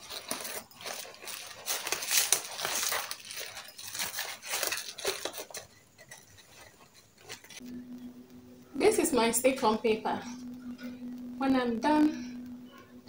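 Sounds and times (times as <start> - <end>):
plastic packets crinkling: 0.0 - 7.7.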